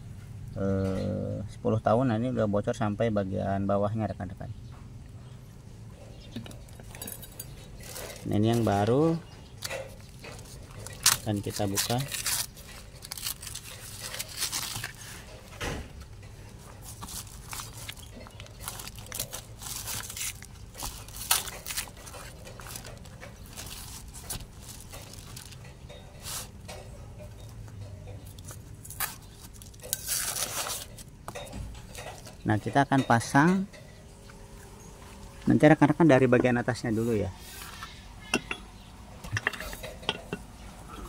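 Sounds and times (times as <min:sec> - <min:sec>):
paper crinkling and tearing: 0:10.4 - 0:15.3, 0:16.8 - 0:25.6, 0:28.4 - 0:31.1.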